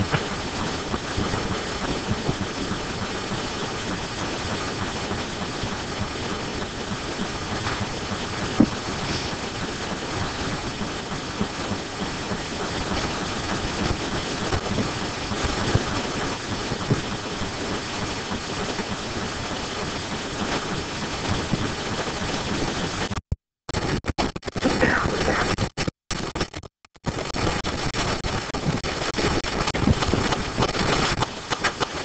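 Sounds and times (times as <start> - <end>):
steady background noise: 0.0 - 23.1.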